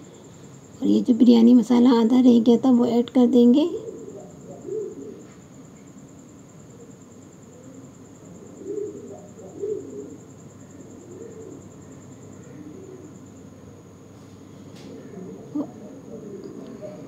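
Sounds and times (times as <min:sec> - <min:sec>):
faint high-pitched whine: 0:00.0 - 0:17.0
pigeons cooing: 0:03.7 - 0:05.4, 0:06.8 - 0:13.2, 0:14.7 - 0:17.0.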